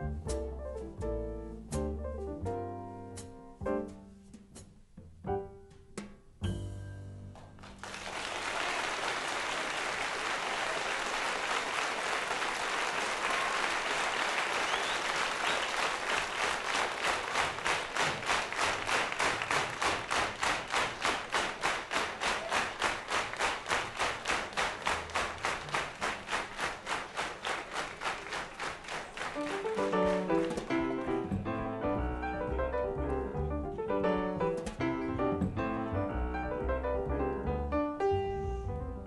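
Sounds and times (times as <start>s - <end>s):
double bass notes: 0.0s - 7.6s, 29.8s - 39.0s
piano notes: 0.0s - 7.8s, 29.3s - 39.0s
rhythmic clapping in unison: 7.4s - 32.5s
audience applause: 7.6s - 31.2s.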